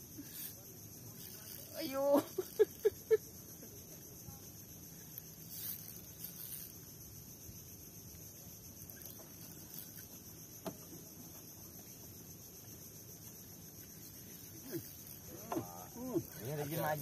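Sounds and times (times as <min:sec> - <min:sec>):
high-pitched insect drone: 0:00.0 - 0:17.0.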